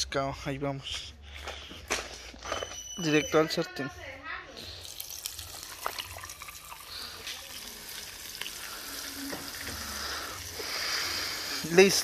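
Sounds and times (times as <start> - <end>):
fish frying in hot oil: 4.8 - 12.0.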